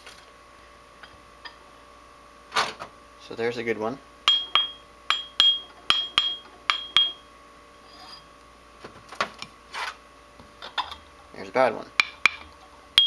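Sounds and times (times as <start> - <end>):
grinding wheel ringing when tapped: 4.3 - 7.2.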